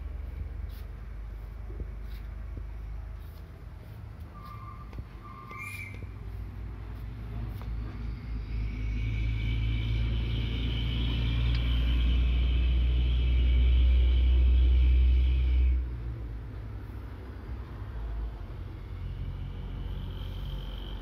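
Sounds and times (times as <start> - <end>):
engine low steady rumble: 0.0 - 21.0
faint high whine: 7.6 - 16.2, 18.4 - 21.0.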